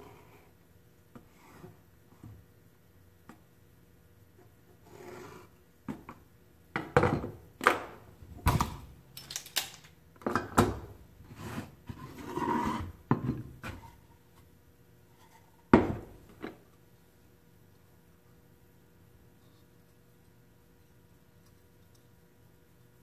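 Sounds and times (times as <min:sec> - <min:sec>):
board sliding on wood: 0:11.3 - 0:13.0.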